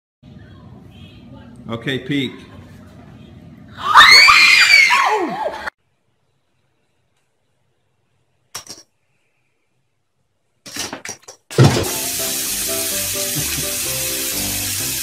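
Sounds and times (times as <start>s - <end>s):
bathroom tap running: 11.5s - 15.0s.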